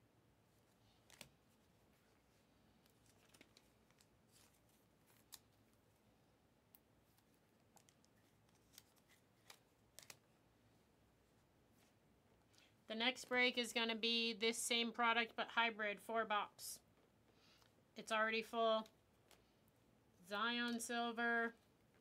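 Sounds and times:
trading cards crinkling: 0.5s - 5.9s, 7.0s - 10.4s.

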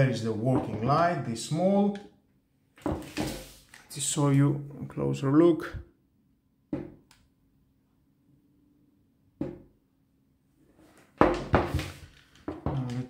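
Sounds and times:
plastic parts knocking: 11.2s - 13.0s.

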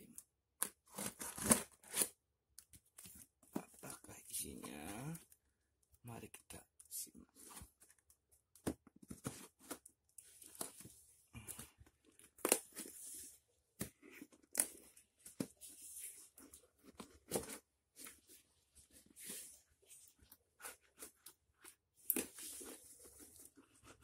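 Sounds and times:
packing tape ripping off cardboard: 0.9s - 2.1s.

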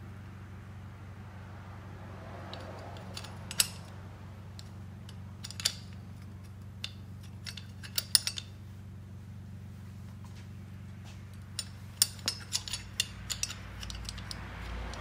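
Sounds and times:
steady low hum: 0.0s - 15.0s
metal tool clicks and clinks: 2.4s - 8.6s, 11.3s - 15.0s.

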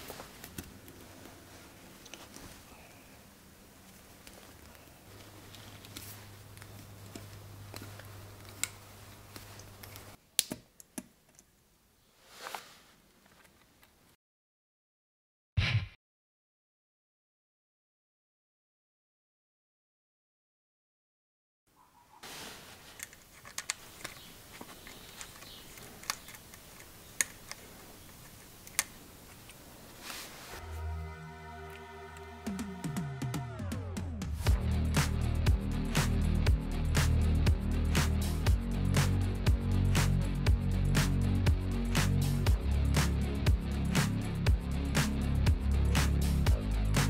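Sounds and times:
soft rush of noise: 0.0s - 10.2s, 22.2s - 32.4s
faint steady hum: 0.0s - 12.2s
faint steady hiss: 0.0s - 14.2s, 22.0s - 32.9s.

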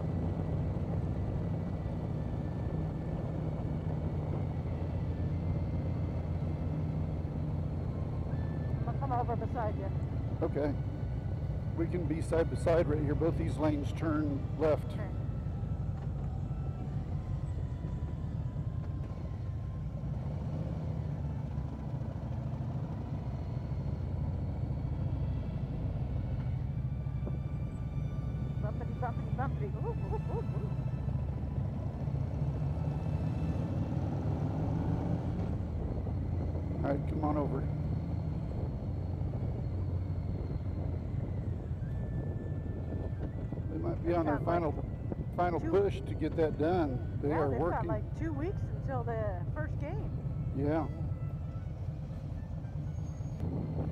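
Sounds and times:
motorcycle engine rumble: 0.0s - 33.5s, 35.2s - 53.9s
wind rushing over microphone: 31.0s - 47.4s, 53.4s - 53.9s.

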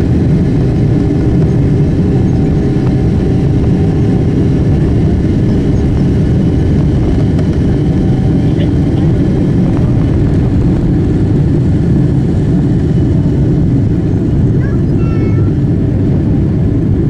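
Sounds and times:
jet engines at take-off thrust: 0.0s - 17.0s
wheels rumbling on runway: 0.0s - 17.0s.

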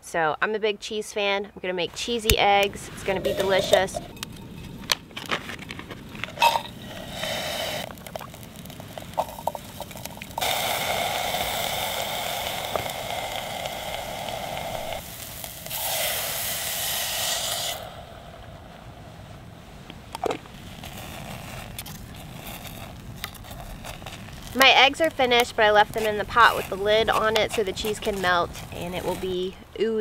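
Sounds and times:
food sizzling in a pot: 6.4s - 18.1s.

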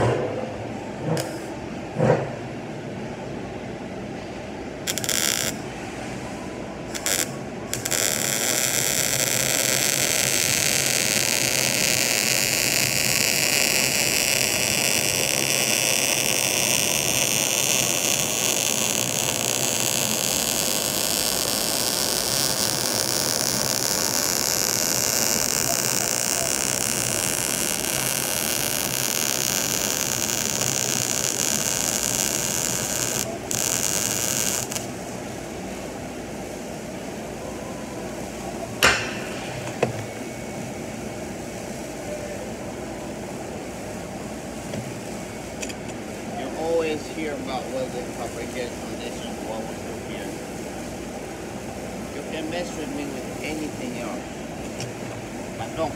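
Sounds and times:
steady shop hum: 0.0s - 55.9s
welding arc crackling: 4.9s - 5.6s, 6.9s - 35.0s.

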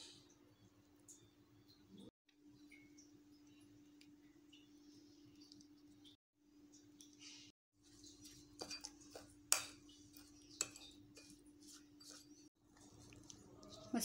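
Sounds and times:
spoon clinking ceramic bowl: 8.6s - 11.4s.

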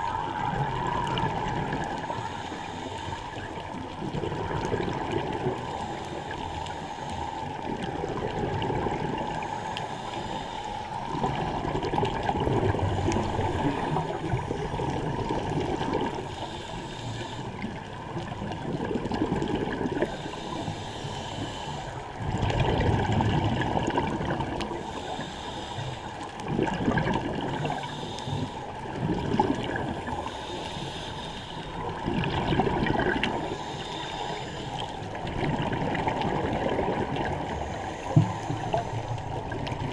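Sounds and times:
bubbles gurgling underwater: 0.0s - 2.2s, 3.4s - 5.7s, 7.6s - 9.6s, 10.9s - 16.3s, 17.5s - 20.2s, 22.1s - 24.8s, 26.4s - 27.9s, 28.7s - 30.3s, 31.7s - 33.6s, 35.1s - 39.9s.

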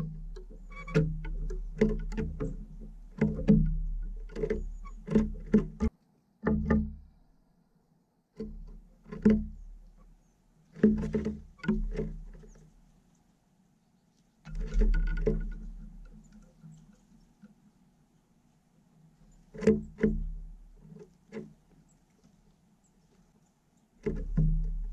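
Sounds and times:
bird pecking on wood: 0.0s - 7.1s, 8.4s - 10.0s, 10.7s - 12.7s, 14.4s - 17.6s, 19.4s - 24.9s.

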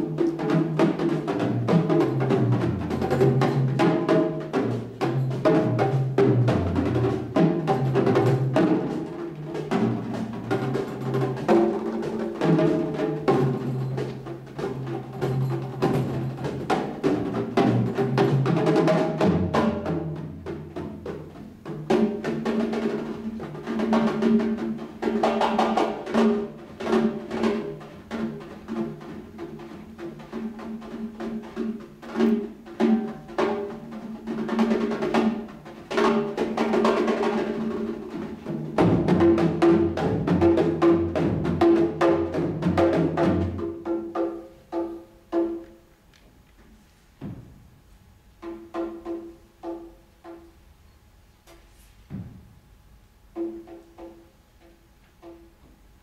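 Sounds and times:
timpani: 0.0s - 46.0s, 46.7s - 50.7s
percussion trio playing drums: 0.0s - 46.1s, 46.7s - 50.9s, 51.6s - 56.0s.

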